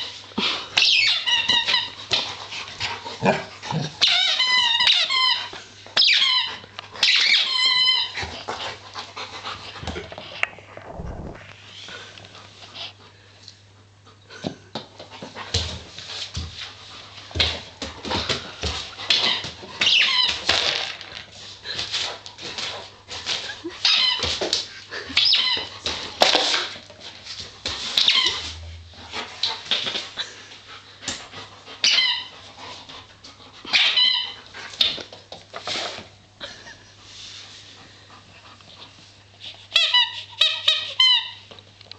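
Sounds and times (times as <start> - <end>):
squeaky toy squeaks: 4.0 - 8.2, 31.8 - 32.3, 39.7 - 41.4.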